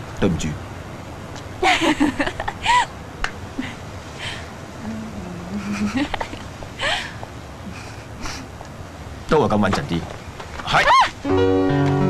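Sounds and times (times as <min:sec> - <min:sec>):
woman laughing: 0:01.6 - 0:02.9, 0:05.4 - 0:08.5, 0:10.8 - 0:11.2
low humming voice: 0:04.8 - 0:06.1.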